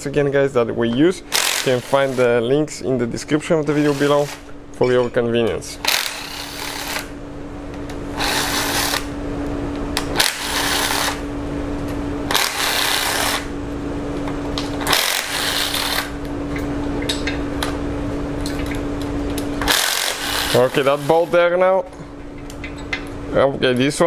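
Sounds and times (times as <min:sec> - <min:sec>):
impact driver hammering: 0:01.3 - 0:01.8
impact driver motor running: 0:01.3 - 0:02.3, 0:05.8 - 0:07.1, 0:08.1 - 0:09.1, 0:10.2 - 0:11.2, 0:12.3 - 0:13.5, 0:14.8 - 0:16.1, 0:19.6 - 0:21.4.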